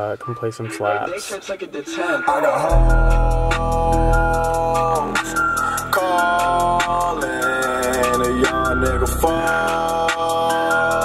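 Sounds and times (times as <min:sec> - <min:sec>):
hip hop song on car stereo: 0:00.1 - 0:11.0
heavy bass: 0:02.7 - 0:11.0.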